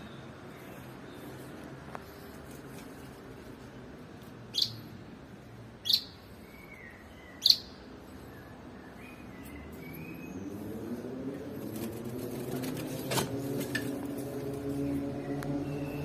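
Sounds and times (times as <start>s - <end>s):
small bird chirping: 4.5s - 5.1s, 5.8s - 10.7s.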